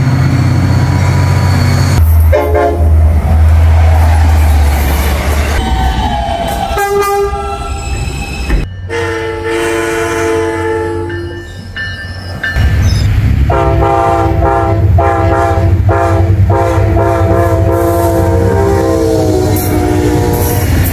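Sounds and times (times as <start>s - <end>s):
train rumbling: 0.0s - 20.9s
locomotive air horn blasts: 2.3s - 2.9s, 6.8s - 7.5s, 8.9s - 11.1s, 13.5s - 20.7s
two-note train horn: 2.3s - 2.9s, 8.9s - 11.3s, 13.5s - 20.6s.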